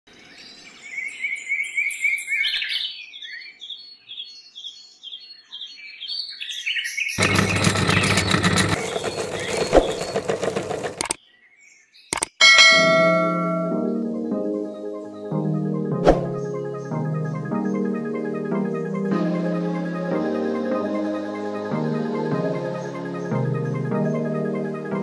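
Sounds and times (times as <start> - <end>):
birds chirping: 0.2 - 14.1.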